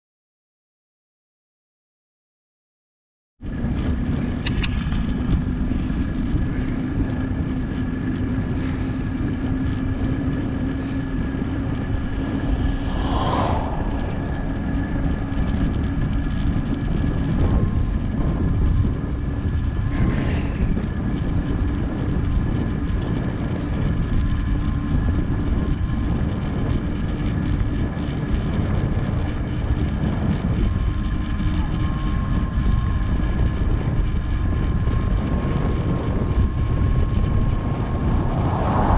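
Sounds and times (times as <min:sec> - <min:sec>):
wind rush: 0:03.9 - 0:26.6, 0:33.5 - 0:38.9.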